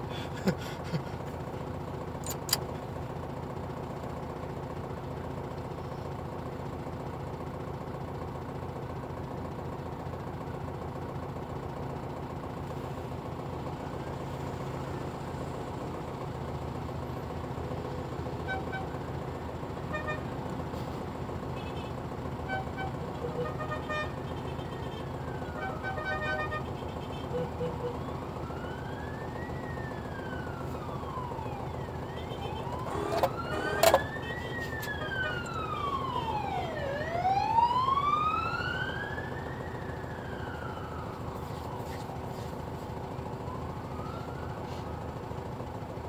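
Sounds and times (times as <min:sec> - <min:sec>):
car engine idling: 0:00.0 - 0:46.0
sharp clicks: 0:02.2 - 0:02.7
car horn toots: 0:19.9 - 0:20.3, 0:21.6 - 0:25.0, 0:25.6 - 0:28.0, 0:32.2 - 0:35.5.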